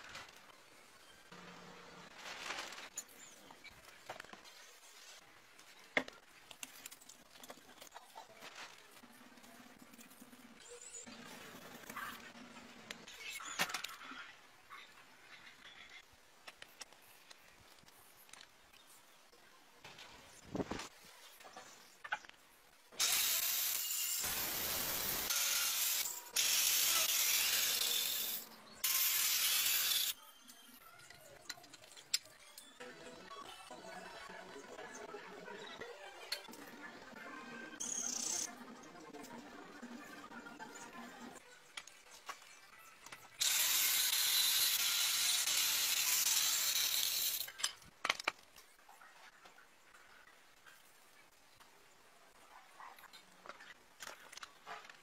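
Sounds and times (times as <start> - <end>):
angle grinder cutting bone: 23.0 - 30.2, 43.4 - 47.5.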